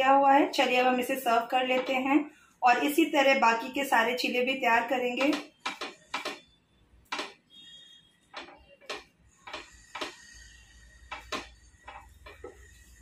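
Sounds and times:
spatula knocking and scraping pan: 0:05.1 - 0:06.5, 0:08.3 - 0:13.0.

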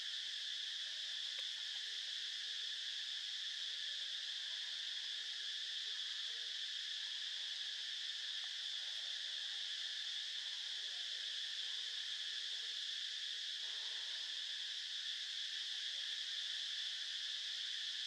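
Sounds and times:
insect chorus drone: 0:00.0 - 0:18.0.

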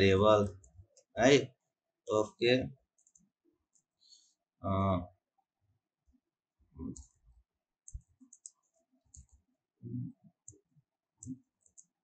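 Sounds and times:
keyboard clicks: 0:02.9 - 0:03.2, 0:07.9 - 0:09.4, 0:11.2 - 0:12.0.

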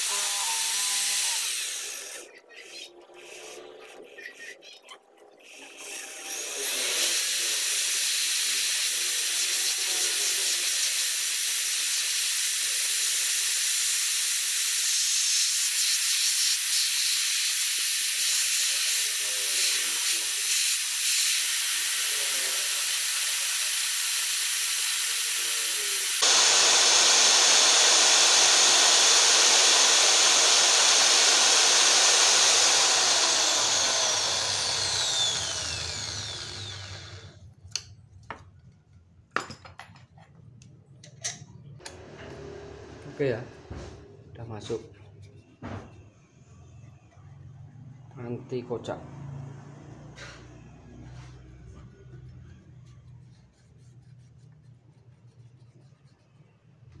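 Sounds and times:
electric drill running: 0:00.0 - 0:03.6, 0:05.4 - 0:10.7, 0:11.5 - 0:37.4.

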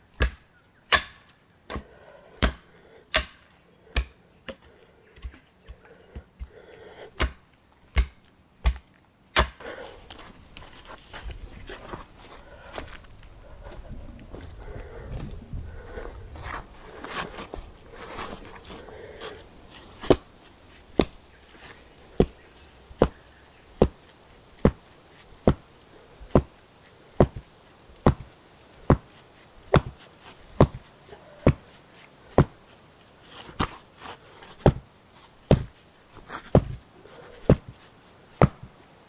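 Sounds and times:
stone pounding wooden stake: 0:00.2 - 0:01.8, 0:02.4 - 0:04.6, 0:07.2 - 0:09.6, 0:24.6 - 0:24.8, 0:27.2 - 0:29.1, 0:29.7 - 0:30.0, 0:35.5 - 0:35.8, 0:38.4 - 0:38.7.

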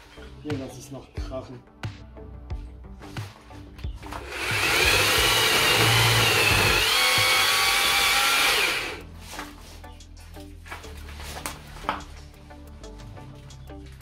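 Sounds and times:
electric chainsaw cutting branches: 0:04.1 - 0:09.0.

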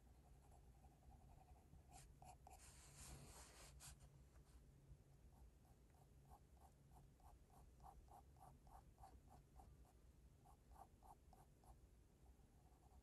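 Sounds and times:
pencil scratching on paper: 0:01.2 - 0:04.0.

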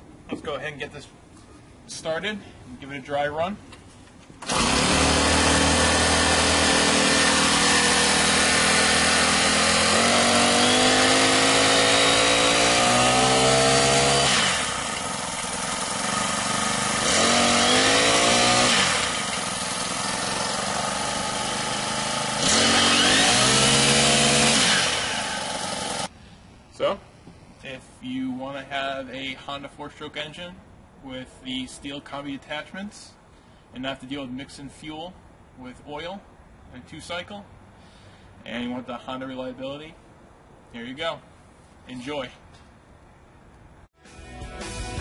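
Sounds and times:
trimmer engine revving and idling: 0:04.4 - 0:26.1.

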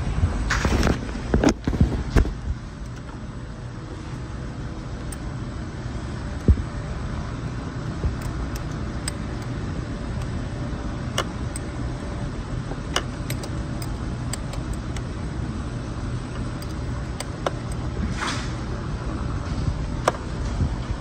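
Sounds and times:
car engine running: 0:01.1 - 0:21.0
sharp metallic clicks: 0:08.1 - 0:15.2, 0:16.2 - 0:17.9.

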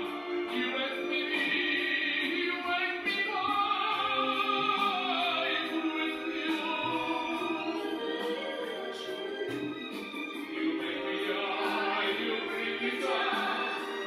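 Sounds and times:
operatic voice singing: 0:00.0 - 0:09.6, 0:10.3 - 0:14.0
classical accompaniment: 0:00.0 - 0:14.0.

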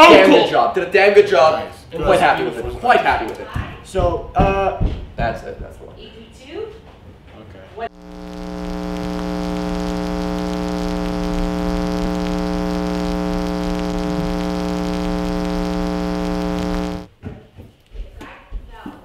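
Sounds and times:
low electronic stand-by buzz: 0:07.9 - 0:17.1.

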